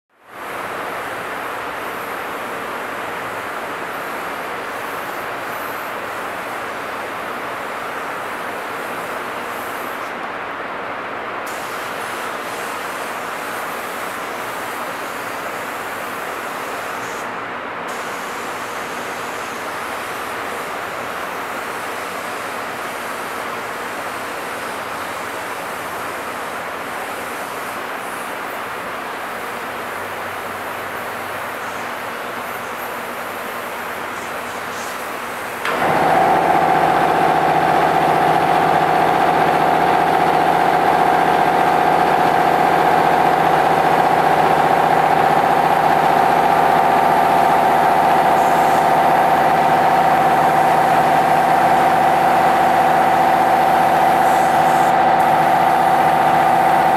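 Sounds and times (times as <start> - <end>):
paint spray gun hissing: 3.4 - 6.2, 11.5 - 17.3, 17.9 - 20.1, 32.4 - 56.9.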